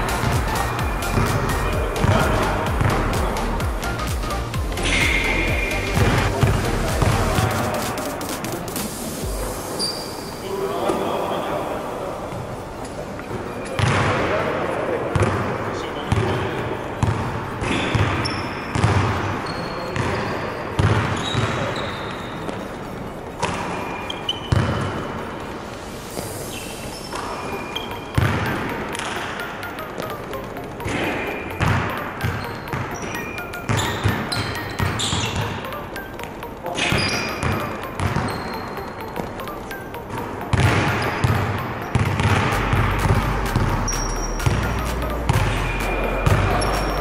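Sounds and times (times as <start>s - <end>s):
basketballs bouncing on wood floor: 0.0s - 7.7s, 17.0s - 20.2s, 20.8s - 22.6s, 24.5s - 25.0s, 28.2s - 29.2s, 30.0s - 47.0s
sneaker squeaks: 0.0s - 7.7s, 9.6s - 11.4s, 13.2s - 14.0s, 16.1s - 25.1s, 26.0s - 47.0s.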